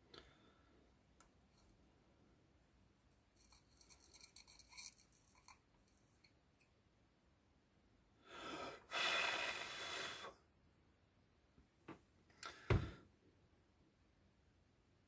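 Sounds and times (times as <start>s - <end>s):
person breathing in: 8.2s - 10.4s
person blowing out hard: 8.9s - 10.3s.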